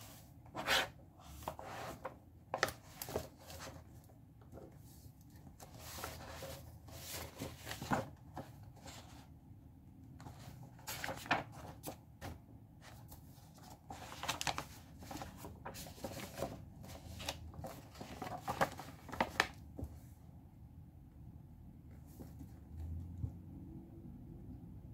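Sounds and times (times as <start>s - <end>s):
paper pages rustling: 0.1s - 9.2s, 10.2s - 19.9s.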